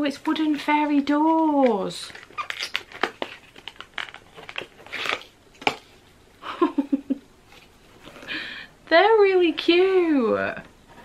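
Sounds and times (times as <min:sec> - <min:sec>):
packaging clicks: 0:01.6 - 0:05.8
cardboard rustling tear: 0:02.2 - 0:05.8.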